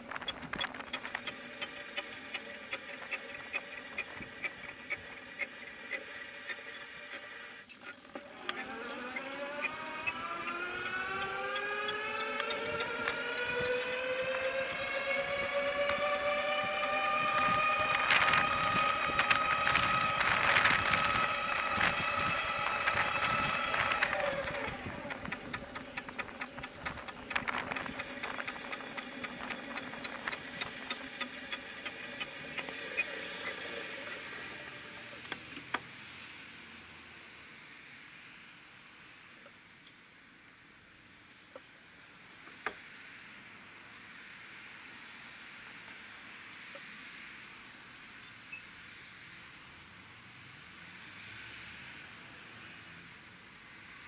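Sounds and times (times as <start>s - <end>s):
bicycle wheel whining: 0.0s - 35.5s.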